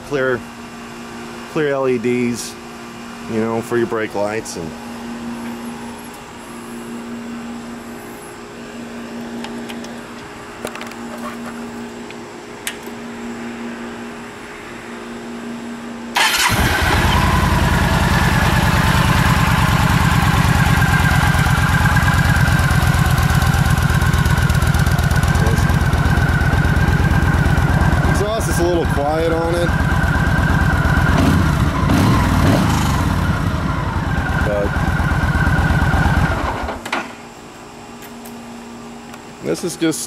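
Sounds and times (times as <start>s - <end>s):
steady low hum: 0.0s - 16.2s, 16.8s - 40.0s
motorcycle engine starting and idling: 16.1s - 37.1s.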